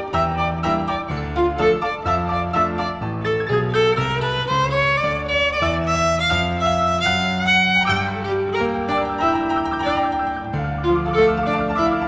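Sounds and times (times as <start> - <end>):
fiddle tune: 0.0 - 12.0.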